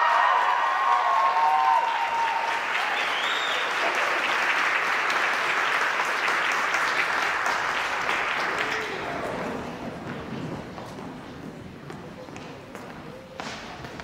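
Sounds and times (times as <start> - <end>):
high whoop: 0.0 - 3.7
audience applause and cheering: 0.0 - 9.9.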